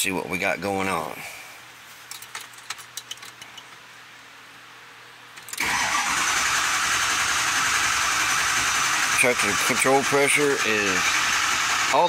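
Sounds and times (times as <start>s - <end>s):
starter cranking diesel engine: 5.6s - 12.0s.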